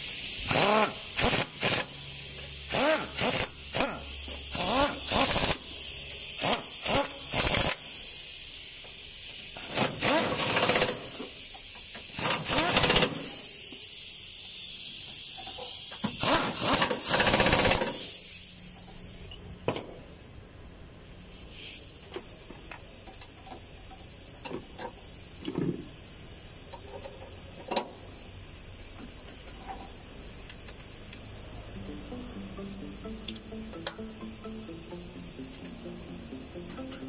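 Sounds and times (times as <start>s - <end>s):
pneumatic ratchet bursts: 0.0s - 19.3s, 21.2s - 31.2s.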